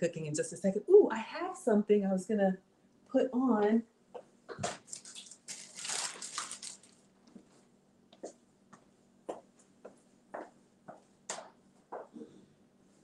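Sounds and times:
rustling: 4.6s - 7.7s.

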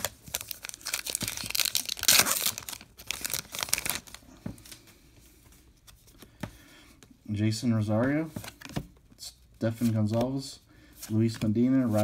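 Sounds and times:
wrapper crinkling and tearing: 0.0s - 4.2s.

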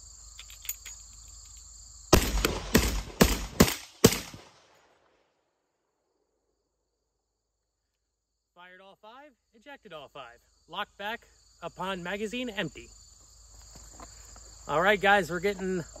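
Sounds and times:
crickets chirping: 0.0s - 3.6s, 6.1s - 16.0s
shotgun shots echoing: 2.1s - 4.7s.

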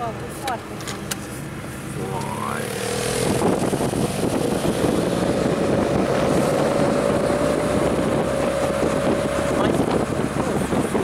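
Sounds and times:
car engine running: 0.0s - 11.0s
wind rushing over microphone: 2.5s - 11.0s.

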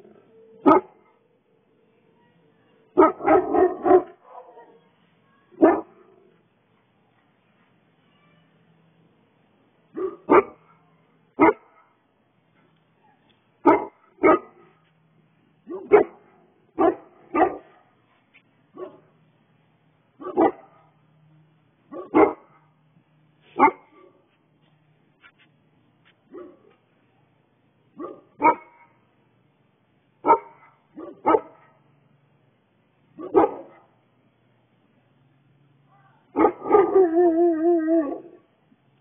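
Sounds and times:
dog barking: 0.6s - 1.2s, 3.0s - 4.9s, 5.6s - 6.3s, 9.9s - 10.8s, 11.4s - 12.0s, 13.0s - 14.8s, 15.6s - 17.9s, 18.8s - 19.1s, 20.2s - 21.0s, 21.9s - 22.8s, 23.6s - 24.3s, 26.3s - 26.8s, 28.0s - 29.0s, 30.2s - 31.8s, 33.2s - 34.0s, 35.9s - 37.2s.

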